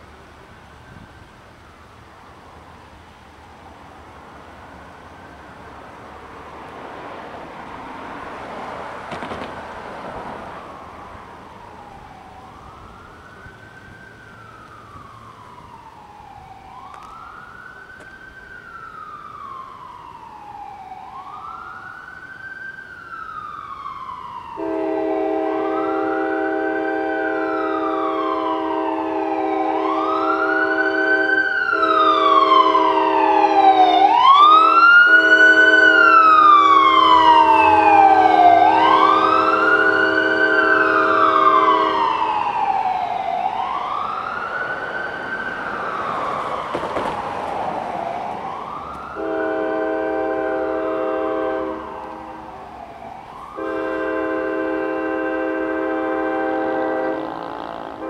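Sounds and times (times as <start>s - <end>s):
ambulance siren wailing: 0.0s - 6.6s, 7.2s - 58.0s
locomotive air horn blasts: 24.6s - 42.4s, 49.1s - 52.5s, 53.5s - 58.0s.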